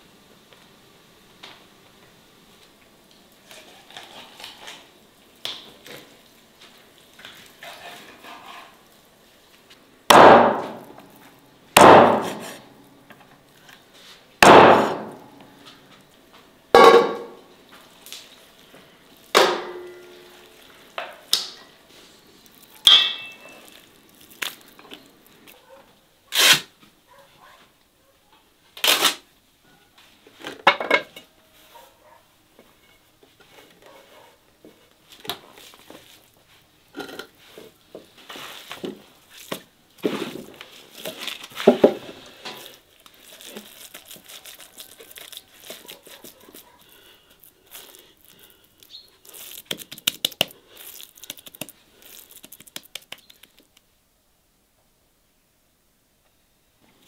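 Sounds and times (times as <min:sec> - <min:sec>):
sharp knocks and clanks: 0:16.8 - 0:17.4.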